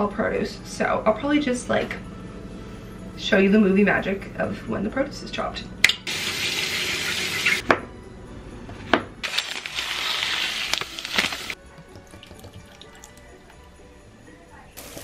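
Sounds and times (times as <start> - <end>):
dry rice pouring into pot: 9.2 - 11.6.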